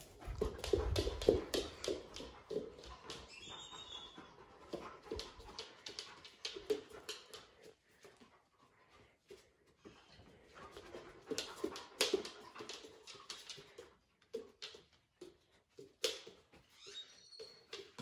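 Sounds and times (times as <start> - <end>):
dog claws clicking on hardwood: 0.2 - 3.2.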